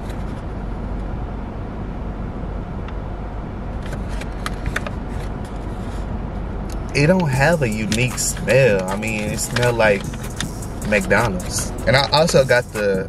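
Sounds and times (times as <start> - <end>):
car engine hum inside cabin: 0.0 - 13.0.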